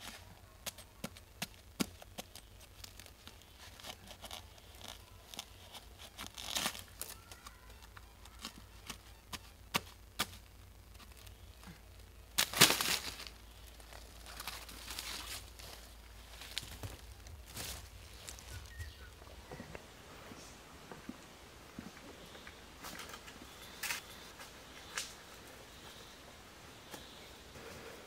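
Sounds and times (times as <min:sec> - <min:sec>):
dry plant matter crackling: 0:00.0 - 0:28.0
plant matter tearing rustle: 0:01.9 - 0:19.2.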